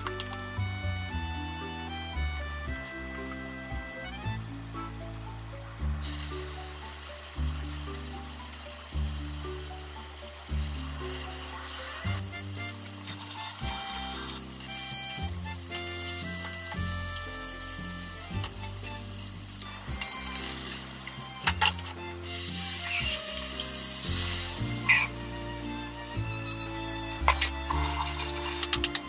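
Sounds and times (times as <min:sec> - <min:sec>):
light background music: 0:00.0 - 0:29.0
patties sizzling in a frying pan: 0:06.0 - 0:28.9.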